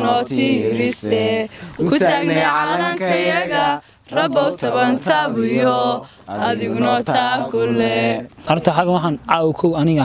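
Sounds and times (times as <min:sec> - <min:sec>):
group singing unaccompanied: 0:00.0 - 0:09.0.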